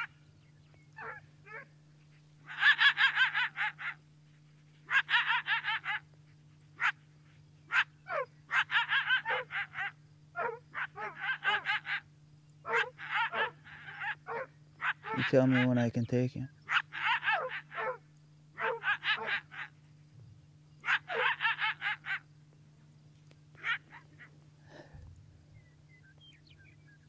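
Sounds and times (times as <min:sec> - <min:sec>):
faint steady hum: 0:00.0 - 0:27.0
coyote barking and yipping: 0:00.9 - 0:15.9, 0:16.6 - 0:22.3, 0:23.2 - 0:25.0.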